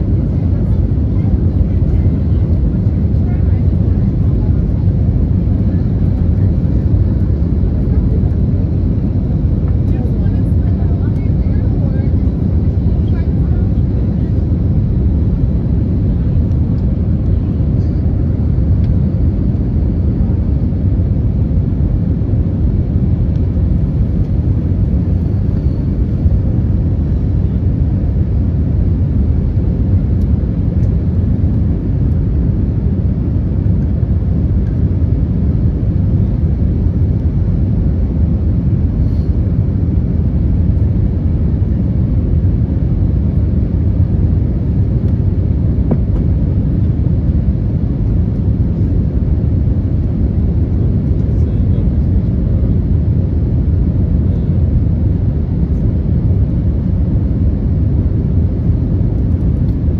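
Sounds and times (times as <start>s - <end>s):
jet engines roaring in cabin: 0.0s - 59.9s.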